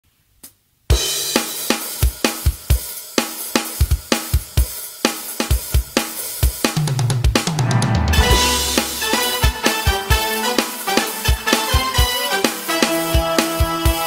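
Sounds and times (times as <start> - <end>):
drum kit beat: 0.9 - 14.0
cymbal crash: 7.5 - 11.0
keyboard and bass chords: 7.5 - 12.0.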